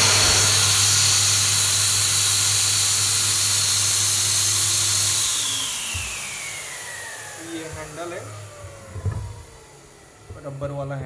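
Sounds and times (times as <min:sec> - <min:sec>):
hiss of spray: 0:00.0 - 0:03.3
fogger motor whining: 0:00.0 - 0:11.0.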